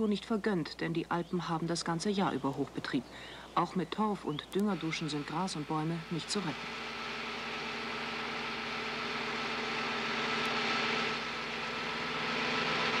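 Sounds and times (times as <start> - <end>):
engine running steadily: 2.2 - 13.0
rushing hiss of spray: 4.5 - 13.0.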